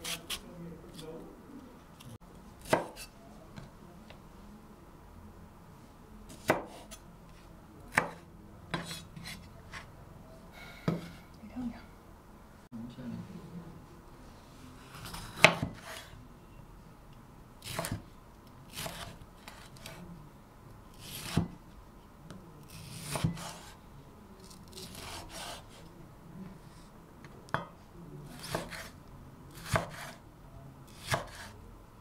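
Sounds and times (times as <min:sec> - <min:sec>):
knife slicing tomato on board: 0:00.0 - 0:01.0, 0:02.6 - 0:03.1, 0:06.3 - 0:07.0, 0:07.9 - 0:09.9, 0:14.9 - 0:16.1, 0:17.6 - 0:18.0, 0:18.7 - 0:20.0, 0:21.0 - 0:21.6, 0:22.6 - 0:23.8, 0:24.8 - 0:25.8, 0:27.5 - 0:30.2, 0:30.9 - 0:31.6.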